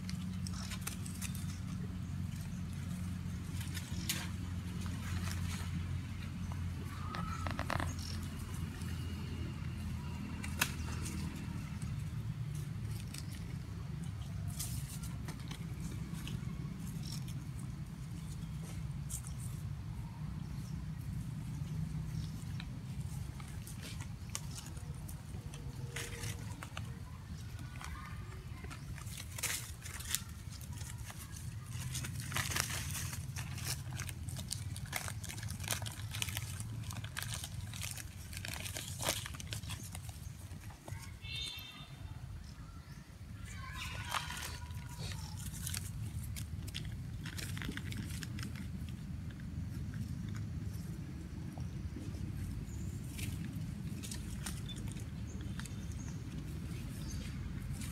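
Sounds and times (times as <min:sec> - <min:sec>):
dry leaves crackling and rustling: 0:00.0 - 0:57.9
steady low rumble: 0:44.9 - 0:57.9.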